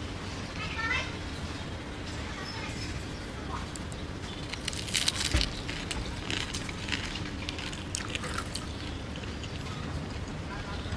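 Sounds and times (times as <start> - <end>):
crispy dumpling crackling: 3.8 - 9.8
wet squishing in sauce: 4.3 - 9.9.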